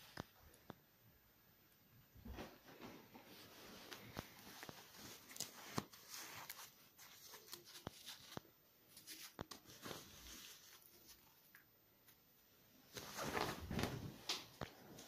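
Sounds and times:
duvet and sponge rustling: 0:02.4 - 0:11.5, 0:12.8 - 0:15.0.

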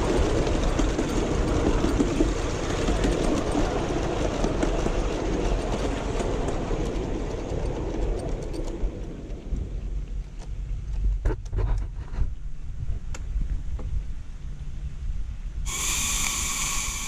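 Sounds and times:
miniature steam train rushing: 0:00.0 - 0:09.8, 0:15.7 - 0:17.0.

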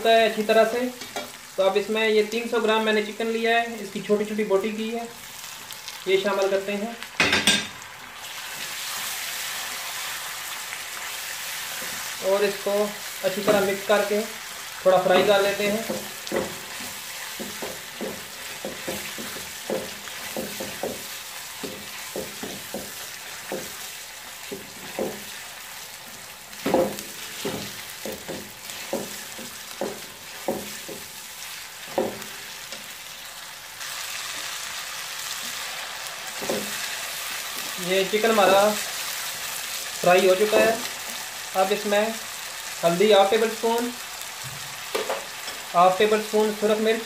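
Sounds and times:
chicken sizzling in hot oil: 0:00.0 - 0:47.0
spatula scraping and knocking pot: 0:15.1 - 0:25.4, 0:26.6 - 0:31.2.

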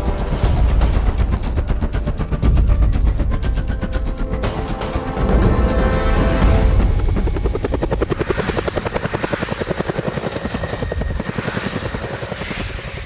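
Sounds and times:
helicopter rotor chopping: 0:05.8 - 0:13.0.

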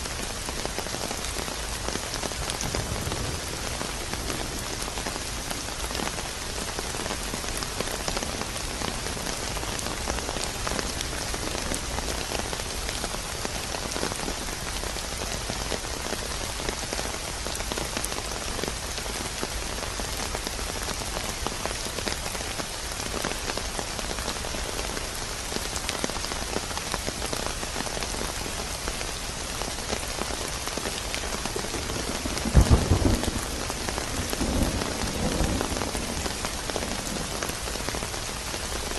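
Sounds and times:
steady rain: 0:00.0 - 0:38.9
rumble of thunder: 0:02.6 - 0:05.3, 0:31.5 - 0:37.7
thunderclap: 0:31.7 - 0:37.6.

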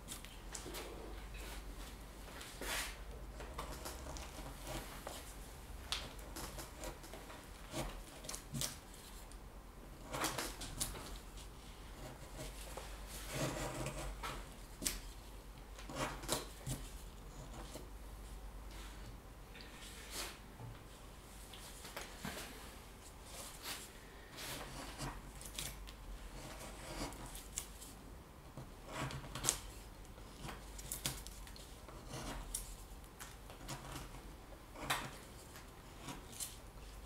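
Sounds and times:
carving tool shaving wood: 0:06.4 - 0:08.3, 0:13.2 - 0:14.1, 0:26.3 - 0:27.2, 0:28.8 - 0:29.5, 0:31.9 - 0:32.6.

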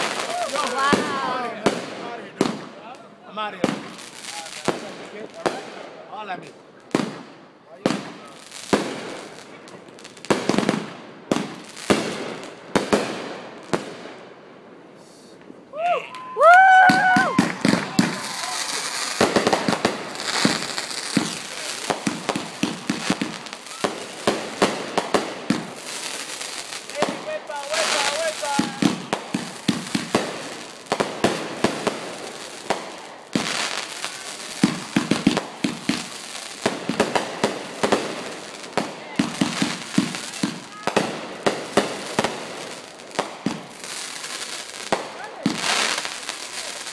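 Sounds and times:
firework shells bursting: 0:16.8 - 0:46.9.

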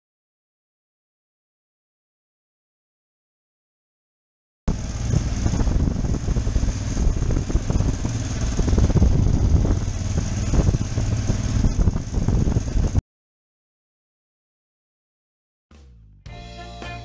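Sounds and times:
motorcycle engine running: 0:04.7 - 0:13.0
wind rumble on microphone: 0:04.7 - 0:13.0.

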